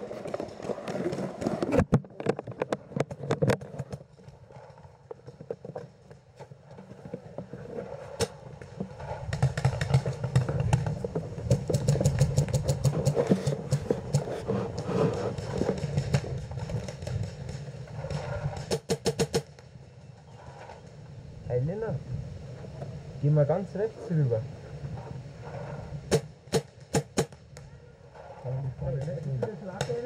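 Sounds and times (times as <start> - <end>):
paintball markers firing pops: 15.1 - 19.7, 26.1 - 27.7.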